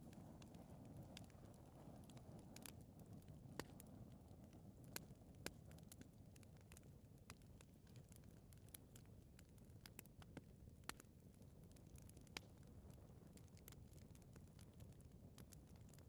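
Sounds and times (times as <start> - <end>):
gas fireplace flames rumbling: 0.0 - 9.7
fire ticks and pops: 0.0 - 16.0.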